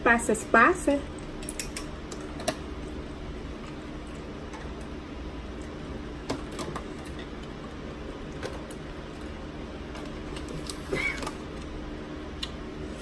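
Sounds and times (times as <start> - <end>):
low steady hum: 0.0 - 13.0
chewing and utensil clicks: 1.2 - 2.6.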